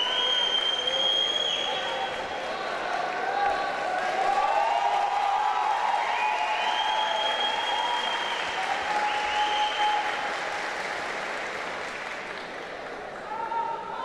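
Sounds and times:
crowd applauding: 0.0s - 13.4s.

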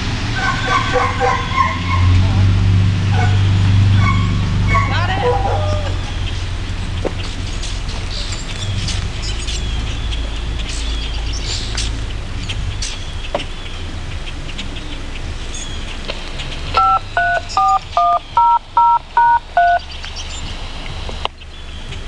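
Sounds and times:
low steady rumble: 0.0s - 22.0s
touch-tone beeps: 16.8s - 19.8s.

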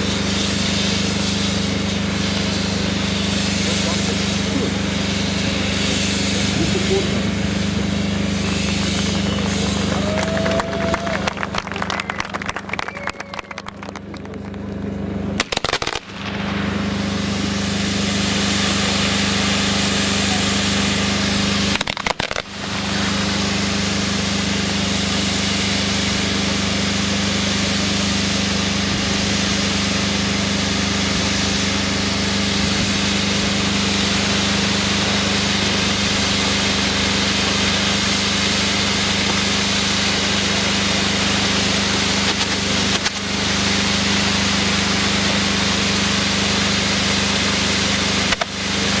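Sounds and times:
fireworks hissing sparks: 0.0s - 14.0s, 15.3s - 49.0s
low hum: 0.0s - 24.3s.

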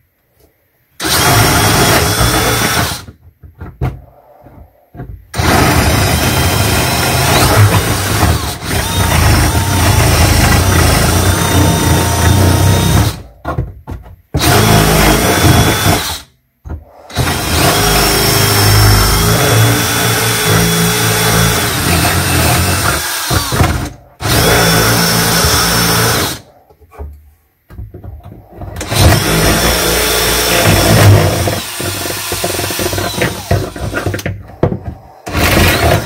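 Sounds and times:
cordless drill boring into wood: 1.0s - 3.1s, 5.4s - 13.3s, 14.4s - 16.3s, 17.1s - 26.5s, 28.8s - 36.0s.

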